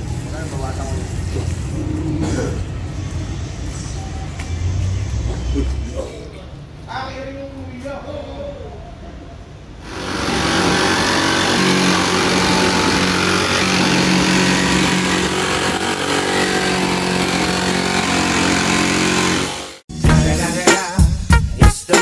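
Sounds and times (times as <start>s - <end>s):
jigsaw cutting sheet metal: 9.8s - 19.8s.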